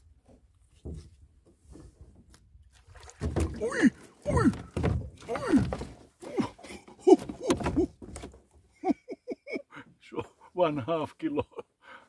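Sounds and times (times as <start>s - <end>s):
dull thumps: 3.1s - 8.5s
person exclaiming: 3.5s - 7.9s.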